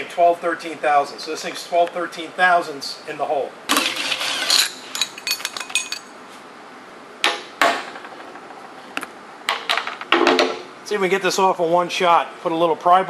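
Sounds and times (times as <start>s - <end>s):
metal tools clinking: 3.8s - 6.1s.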